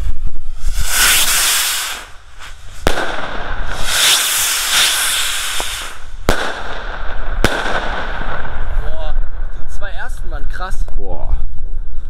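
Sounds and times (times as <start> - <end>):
rockets bursting bangs: 0.0 - 10.2
rocket launch hisses: 0.4 - 8.9.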